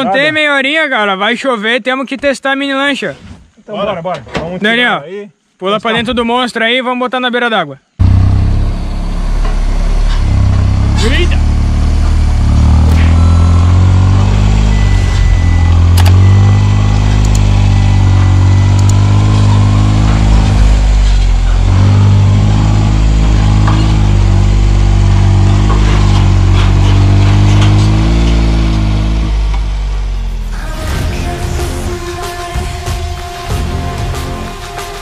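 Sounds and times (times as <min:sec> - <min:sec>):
buggy engine running: 0:08.0 - 0:34.7.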